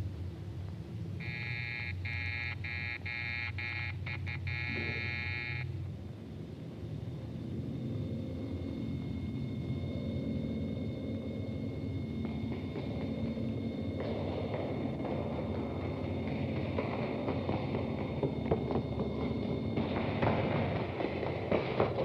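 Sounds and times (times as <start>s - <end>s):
low steady rumble: 0.0s - 22.0s
electric buzzer: 1.2s - 5.7s.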